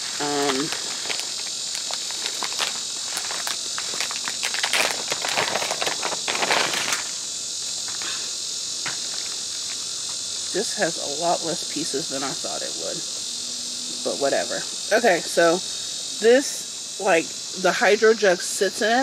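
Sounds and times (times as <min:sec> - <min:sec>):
plastic bag crinkling and tearing: 0:00.0 - 0:07.2
high drone of insects: 0:00.0 - 0:19.0.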